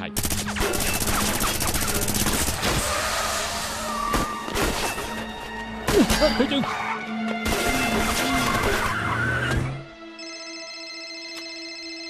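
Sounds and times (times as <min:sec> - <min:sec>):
rapid gunfire rattle: 0:00.2 - 0:02.7.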